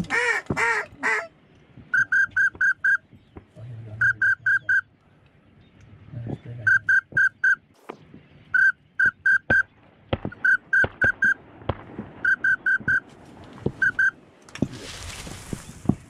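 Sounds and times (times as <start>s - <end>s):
duck whistle peeps: 2.0s - 3.0s.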